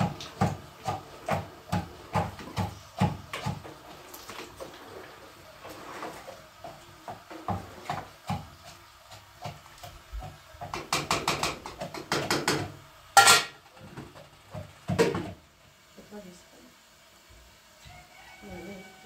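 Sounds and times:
pots and dishes clattering: 0:00.0 - 0:09.6, 0:10.2 - 0:15.4.

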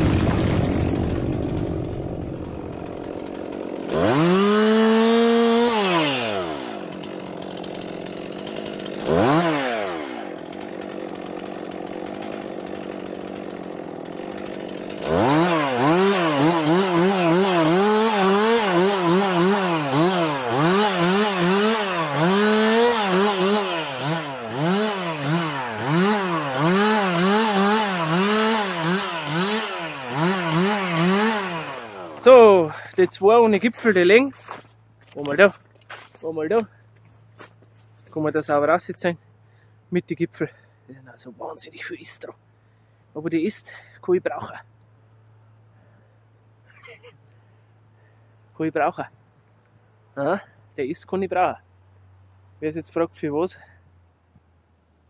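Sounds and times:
chainsaw revving and cutting: 0:00.0 - 0:35.5.

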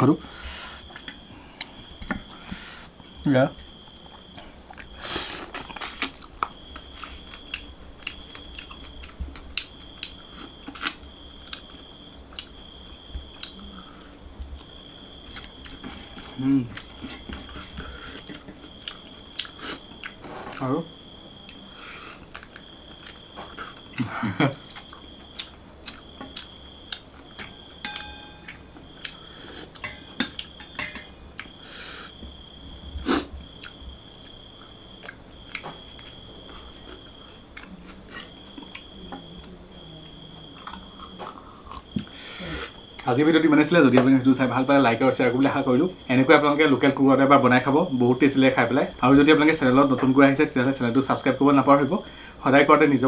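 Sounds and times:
person chewing food: 0:00.8 - 0:02.6, 0:03.6 - 0:20.6, 0:21.4 - 0:39.0, 0:40.4 - 0:43.0
faint high whine: 0:23.0 - 0:34.0
ringing metallic clink: 0:27.8 - 0:28.6.

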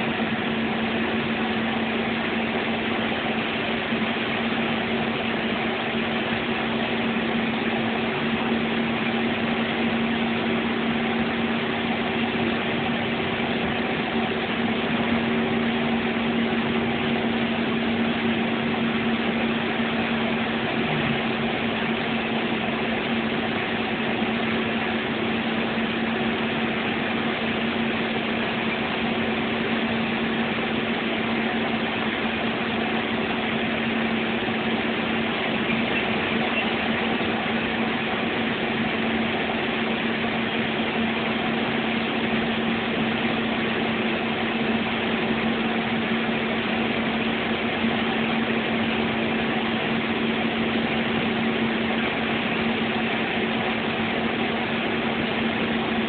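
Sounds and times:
bus engine drone and road noise: 0:00.0 - 0:56.0
constant low hum: 0:00.0 - 0:56.0.

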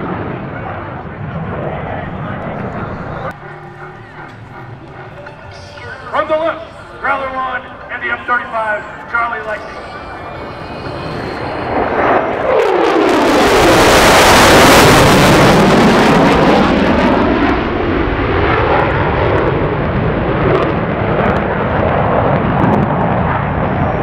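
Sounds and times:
jet engines roaring: 0:00.0 - 0:24.0.

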